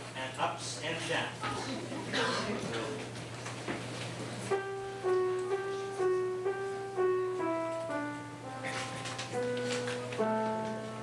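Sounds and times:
piano playing simple melody: 4.4 - 11.0.

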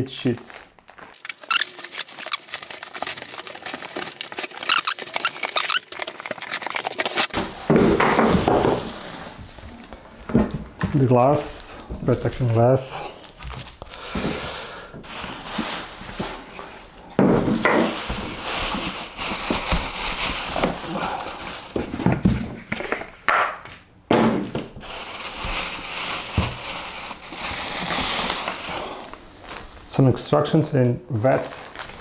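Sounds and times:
plastic wrap crinkling: 0.0 - 14.4, 15.0 - 23.2, 24.8 - 32.0
cardboard rustling and scraping: 7.0 - 12.5, 15.1 - 23.1.

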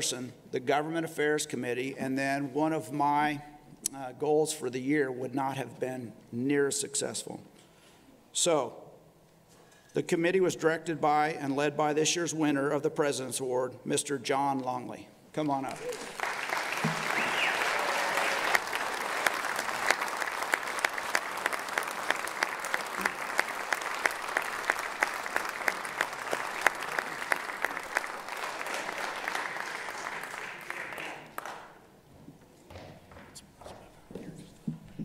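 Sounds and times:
audience applauding: 15.7 - 31.8
sharp individual claps: 15.7 - 31.8.

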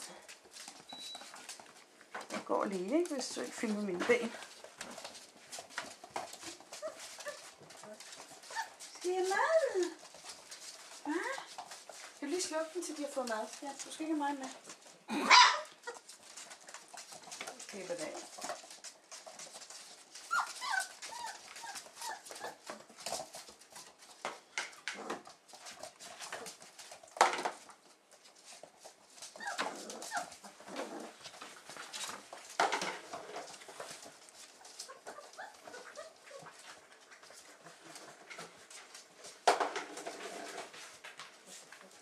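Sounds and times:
puppies whimpering: 20.2 - 22.7, 29.3 - 30.5.

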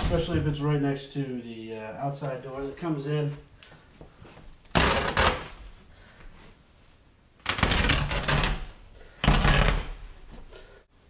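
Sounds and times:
carpet ripping: 4.7 - 5.6, 7.4 - 10.0.

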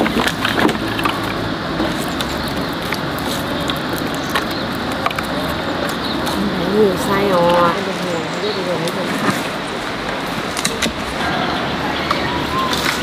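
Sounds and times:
twigs snapping: 0.0 - 7.6, 8.8 - 11.3
dry twigs cracking and rustling: 0.0 - 13.0.

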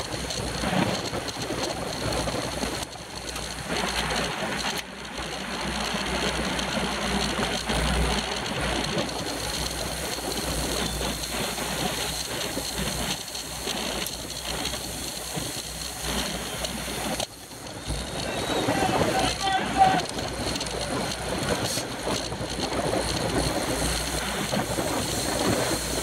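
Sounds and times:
bicycle tyres and drivetrains whirring: 0.0 - 26.0
wind rushing over microphone: 0.0 - 26.0.

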